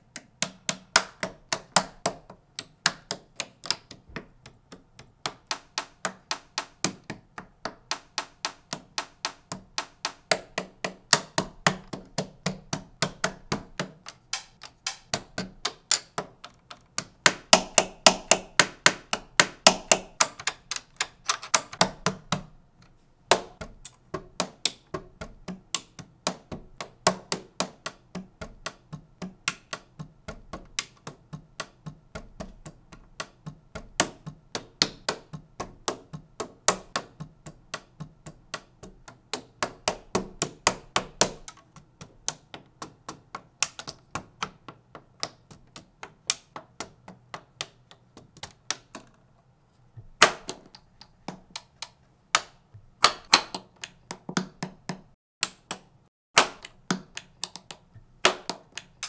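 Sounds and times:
plastic bricks clicking together: 13.0 - 21.9.

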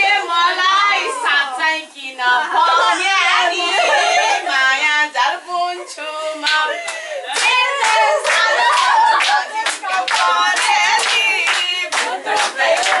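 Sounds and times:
women and children singing: 0.0 - 13.0
hand clapping: 6.5 - 13.0.

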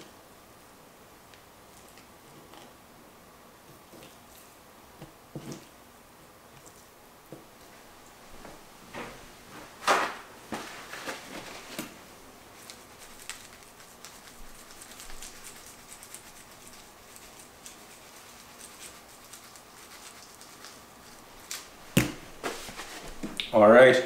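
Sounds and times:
fine crackling of seasoning: 12.5 - 23.2.

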